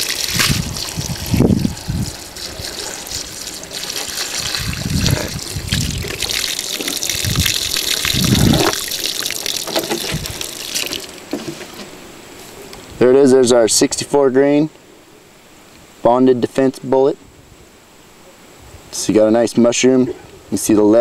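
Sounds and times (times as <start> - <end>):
water splashing onto grass: 0.0 - 11.3.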